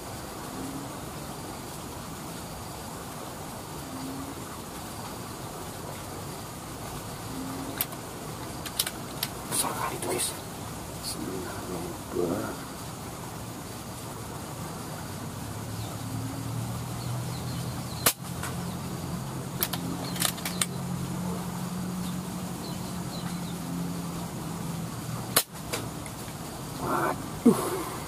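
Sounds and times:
steady low hum: 0.0 - 28.0
rifle handling clicks: 8.6 - 9.4.

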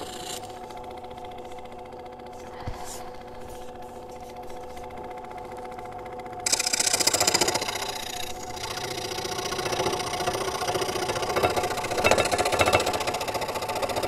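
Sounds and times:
scroll saw cutting wood: 0.0 - 2.4, 6.4 - 14.0.

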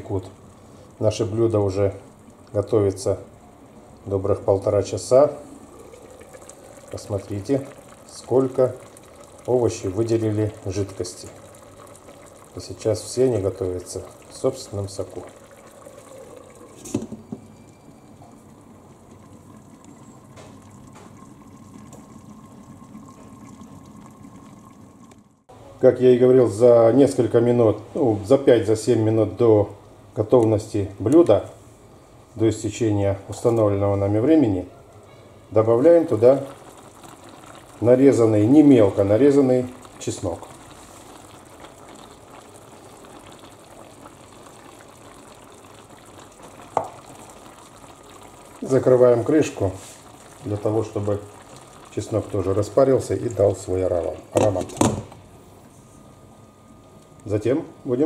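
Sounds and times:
pot simmering bubble: 0.0 - 58.0.

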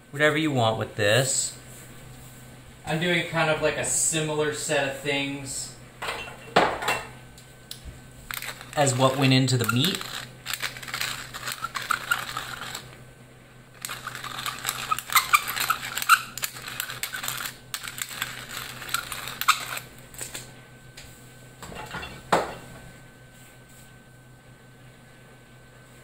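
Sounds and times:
pepper mill grinding clicks: 8.3 - 12.9, 13.8 - 20.4.

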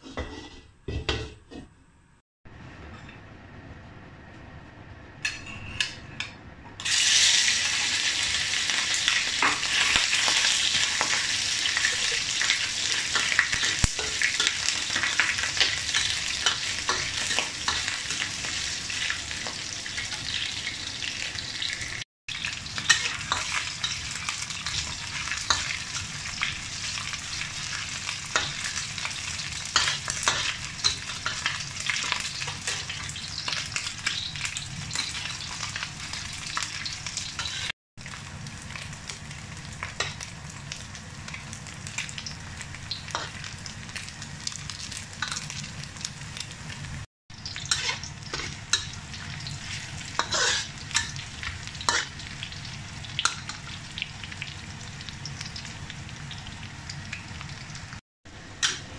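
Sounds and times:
metal ladle scraping a pan: 0.0 - 1.7, 47.6 - 48.9, 49.7 - 51.2
meat sizzling in a wok: 6.8 - 58.9.

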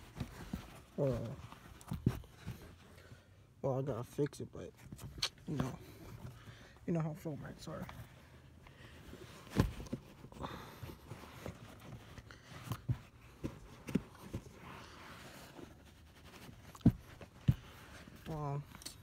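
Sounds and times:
floor mat thumps and rustling: 1.8 - 2.6, 9.4 - 10.3, 16.4 - 18.2.

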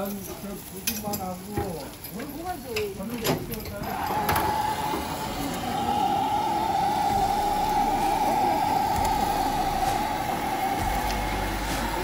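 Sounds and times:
gas torch roaring: 3.8 - 12.0.

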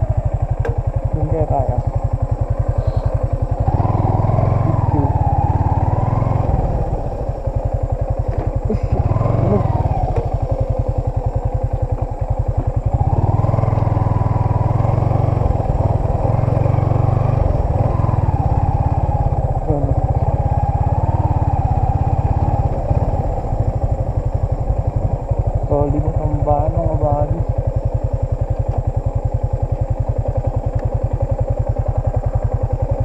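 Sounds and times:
motorcycle engine revving: 0.0 - 33.0.

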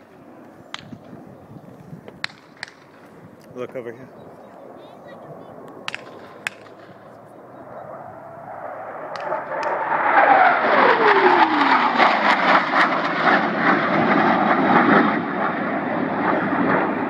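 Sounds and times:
jet roaring past: 0.0 - 17.0
jet whine falling in pitch: 3.8 - 17.0.

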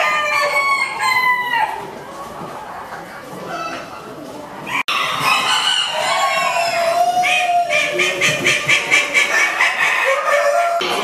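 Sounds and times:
chicken clucking: 0.0 - 11.0
rooster crowing: 9.6 - 11.0.

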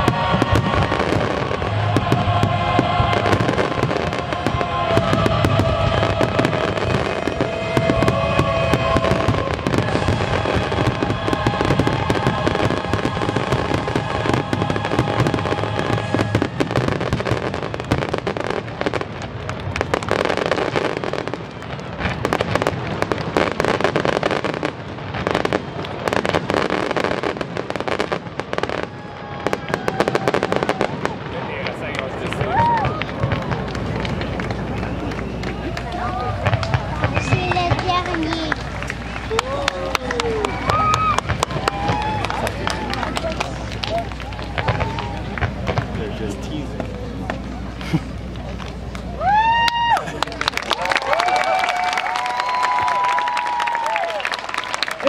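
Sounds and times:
fireworks bangs and crackle: 0.0 - 55.0.

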